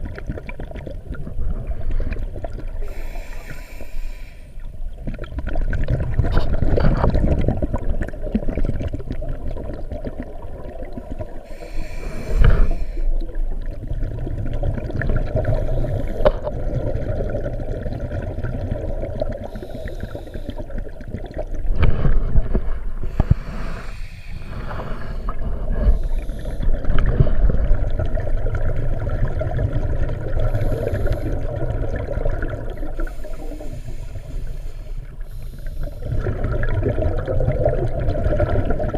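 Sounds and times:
exhaled bubbles: 0:00.0 - 0:04.0, 0:04.6 - 0:38.9
underwater regulator breathing: 0:02.8 - 0:04.7, 0:11.4 - 0:13.4, 0:15.4 - 0:16.6, 0:19.4 - 0:20.8, 0:21.8 - 0:27.7, 0:30.4 - 0:31.7, 0:32.8 - 0:36.4.

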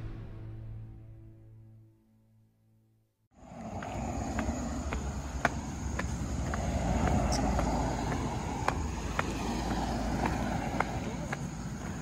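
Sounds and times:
footsteps on gravel: 0:03.4 - 0:12.0.

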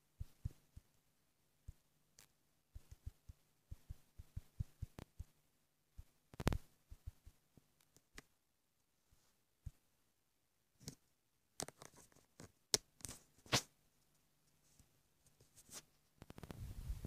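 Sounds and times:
fingertips tapping touchscreen: 0:01.7 - 0:05.4, 0:06.0 - 0:08.3.

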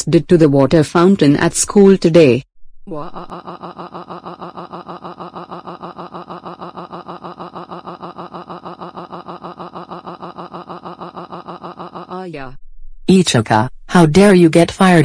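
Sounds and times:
cartoon character crying: 0:02.9 - 0:12.3.

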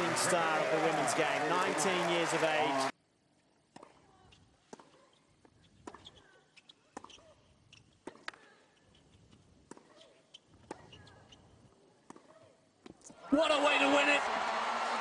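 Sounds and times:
tennis ball bounces: 0:03.7 - 0:06.2, 0:09.6 - 0:11.0
shoes squeaking on court: 0:03.7 - 0:13.1.

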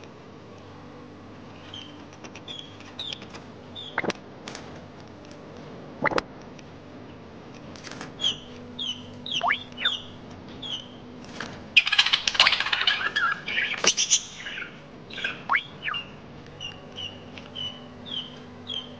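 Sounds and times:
chick peeping: 0:08.2 - 0:11.0, 0:11.8 - 0:18.9.

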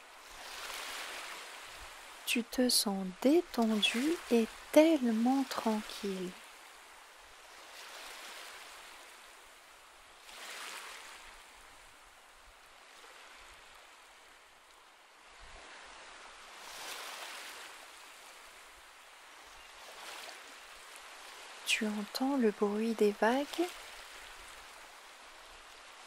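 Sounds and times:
ocean waves washing onto shore: 0:00.0 - 0:26.0.

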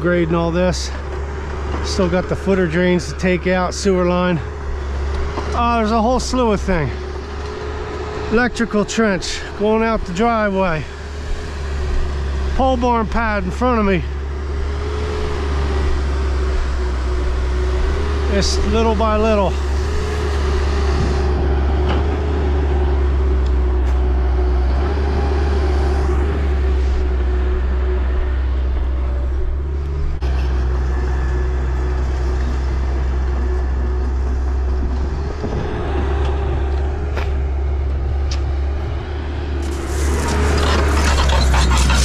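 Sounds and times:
diesel engine droning: 0:00.0 - 0:42.0
loud rushing noise: 0:38.6 - 0:42.0.

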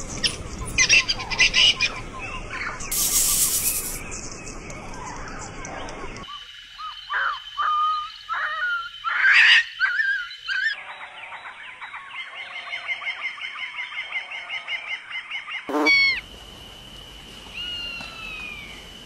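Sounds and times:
fast run of chirps: 0:02.8 - 0:05.5
animal cries rising and falling: 0:15.7 - 0:16.2.

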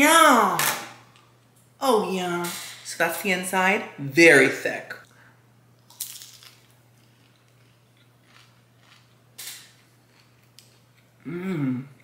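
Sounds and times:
faint chewing crunches: 0:05.9 - 0:11.2.

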